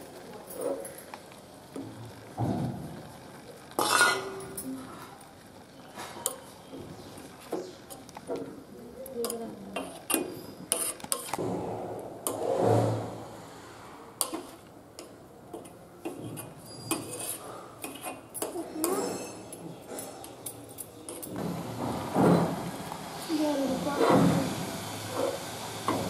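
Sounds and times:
metal spoon stirring in metal pot: 0:03.7 - 0:04.8, 0:06.0 - 0:08.2, 0:09.2 - 0:11.4, 0:14.2 - 0:21.4.

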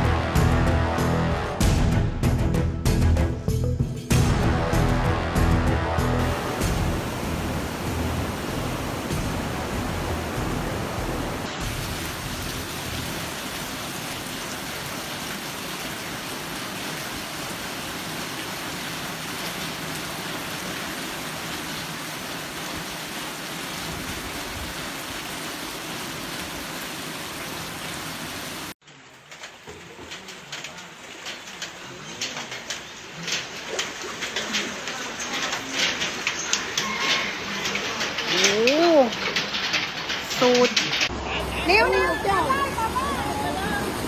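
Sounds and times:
floodwater rushing: 0:04.1 - 0:44.0.

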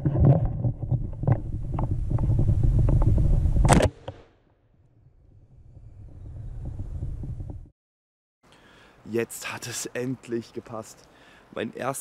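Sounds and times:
wind rumble: 0:00.0 - 0:03.8, 0:04.8 - 0:07.7.

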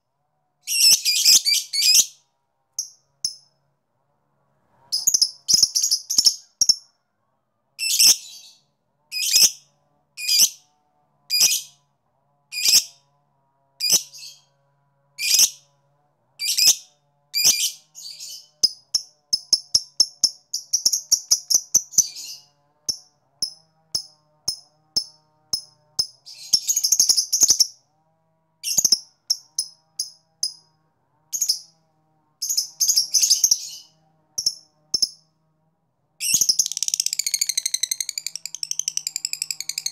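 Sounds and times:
bird chirping and chattering: 0:05.0 - 0:06.9, 0:17.4 - 0:27.7, 0:28.6 - 0:30.6, 0:32.4 - 0:35.2, 0:36.2 - 0:39.9.

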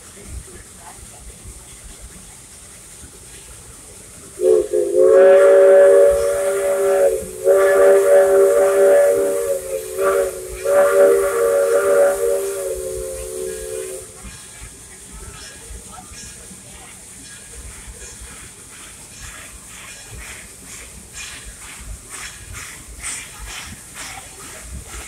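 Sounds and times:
steam locomotive chime whistle: 0:04.4 - 0:14.2.

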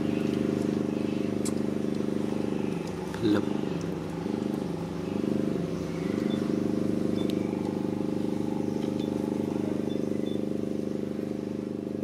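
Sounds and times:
engine idling: 0:00.0 - 0:12.0.

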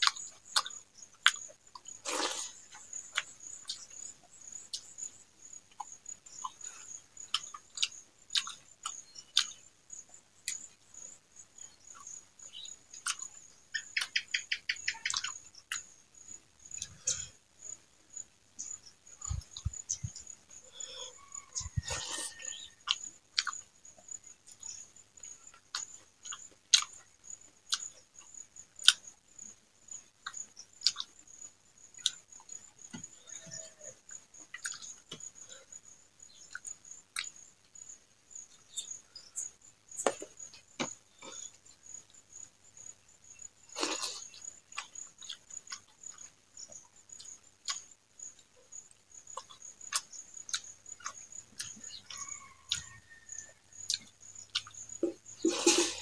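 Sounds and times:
mouth smacking and chewing: 0:21.6 - 0:23.6, 0:30.2 - 0:31.1, 0:34.5 - 0:35.0.

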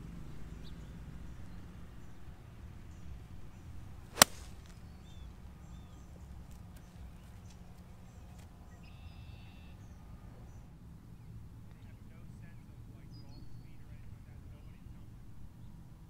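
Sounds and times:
golf club striking ball: 0:04.1 - 0:04.9.

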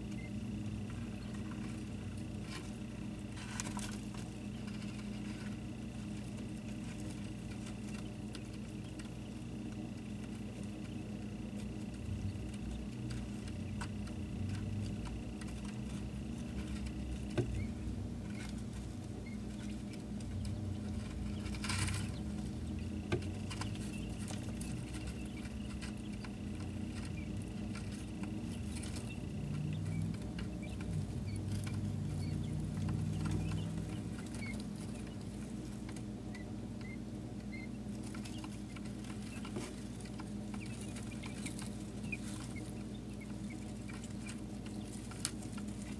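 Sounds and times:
beaks pecking: 0:00.0 - 0:45.9
steady low hum: 0:00.0 - 0:45.9
tiny feet scratching: 0:00.0 - 0:45.9.

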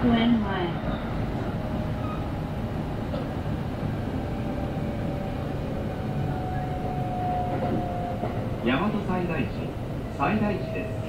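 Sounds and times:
train low rumble: 0:00.0 - 0:11.0.

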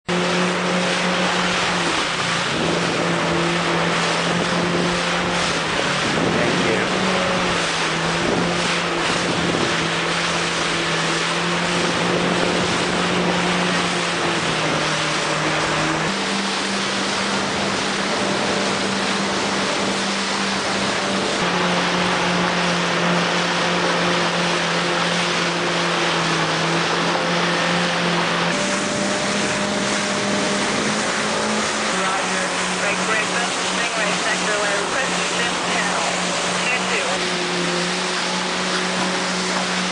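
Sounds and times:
motorboat engine humming: 0:00.0 - 0:39.9
wind: 0:00.0 - 0:39.9
water spray rushing: 0:00.1 - 0:39.9.

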